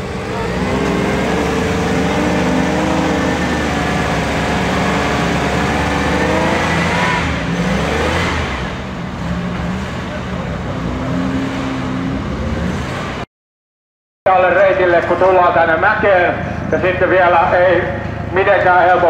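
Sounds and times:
car engine revving hard: 0:00.0 - 0:13.2.

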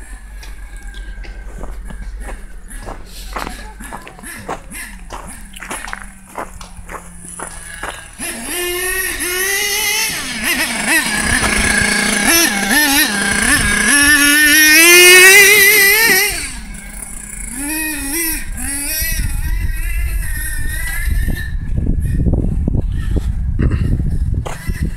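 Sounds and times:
small nitro engine revving: 0:07.1 - 0:24.9.

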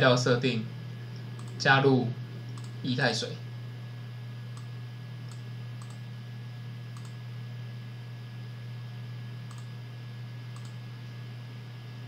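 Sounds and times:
steady low hum: 0:00.0 - 0:12.0
computer mouse clicks: 0:01.4 - 0:01.6, 0:02.5 - 0:02.8, 0:05.3 - 0:06.0, 0:07.0 - 0:07.2, 0:09.5 - 0:09.7, 0:10.6 - 0:10.8.

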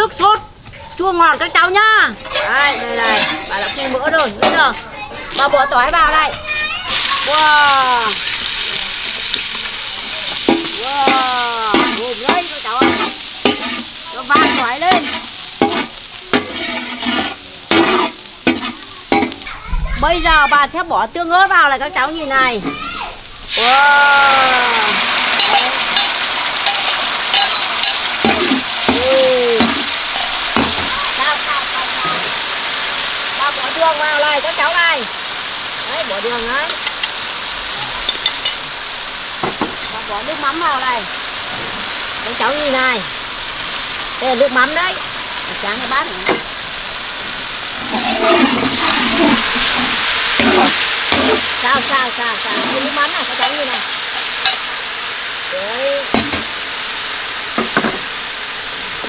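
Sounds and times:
sauce sizzling in hot fat: 0:00.0 - 0:59.0
metal spatula stirring in wok: 0:00.6 - 0:05.0, 0:08.2 - 0:19.5, 0:25.0 - 0:32.4, 0:47.7 - 0:54.7.

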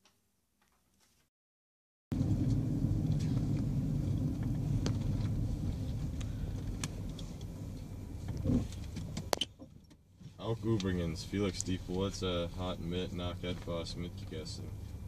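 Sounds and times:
car cabin road rumble: 0:02.1 - 0:15.0.

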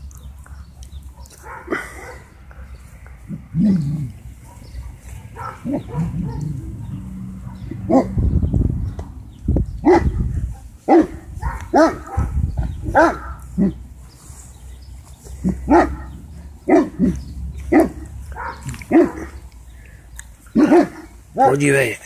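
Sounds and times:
dogs barking: 0:00.1 - 0:09.0, 0:09.7 - 0:14.3, 0:15.0 - 0:21.9.

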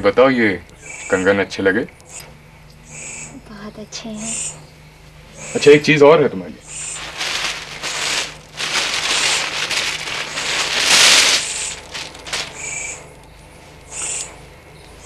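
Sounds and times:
gift wrapping crinkling: 0:06.7 - 0:13.1.

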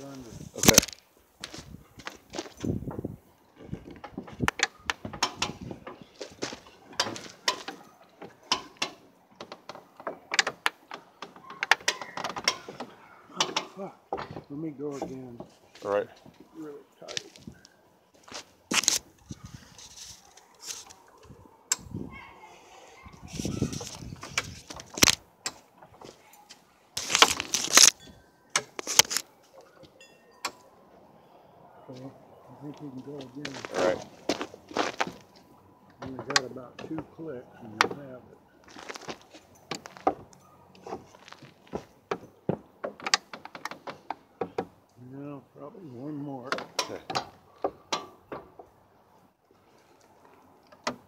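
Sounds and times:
scraping and rustling: 0:00.0 - 0:21.4, 0:22.7 - 0:28.0, 0:28.6 - 0:29.3, 0:38.6 - 0:42.0.

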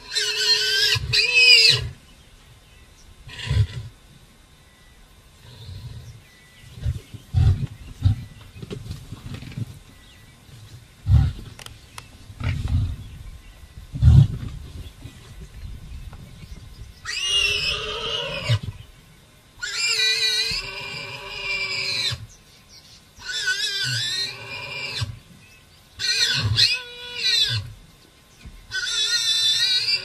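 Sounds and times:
piglet squealing: 0:17.1 - 0:18.6, 0:28.7 - 0:30.0.

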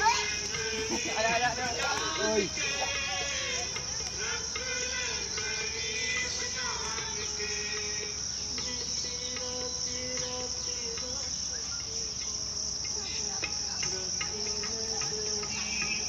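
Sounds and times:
insects chorus shrill hum: 0:00.0 - 0:16.0.

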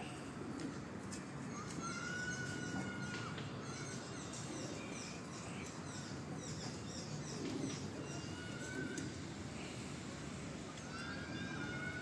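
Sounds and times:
low outdoor background: 0:00.0 - 0:12.0
birds chirping: 0:01.4 - 0:09.2.

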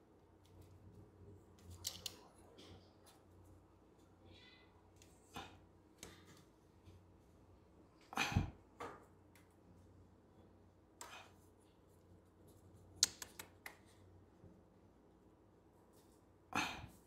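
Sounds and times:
small sharp clicks: 0:13.0 - 0:13.8.

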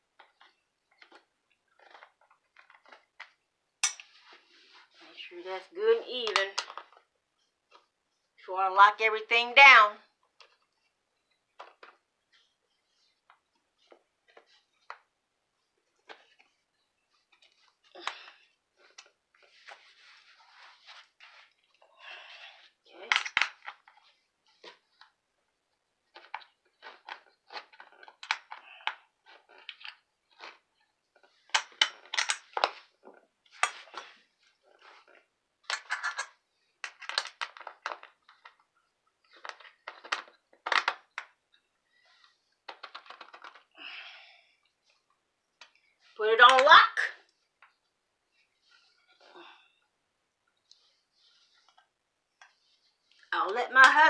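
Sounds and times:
scraping rustles: 0:18.8 - 0:22.6
metal clinks and rattles: 0:35.7 - 0:36.3.

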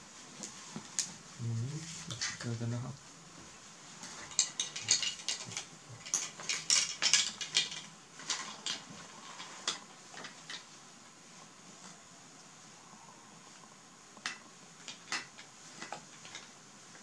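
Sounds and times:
plastic toys clattering: 0:04.0 - 0:10.7, 0:14.2 - 0:17.0.

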